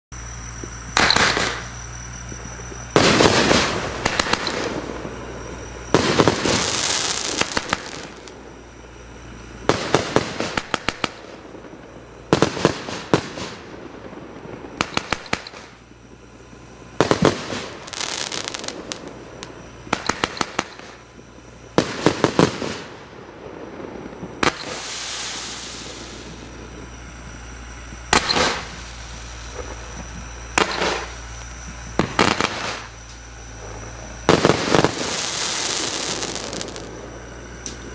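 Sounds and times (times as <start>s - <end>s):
firework hissing and crackling: 0.2s - 37.9s
firework launch and burst reports: 1.0s - 2.2s, 2.9s - 5.2s, 5.9s - 8.4s, 12.4s - 15.8s, 21.8s - 26.8s, 28.1s - 37.3s.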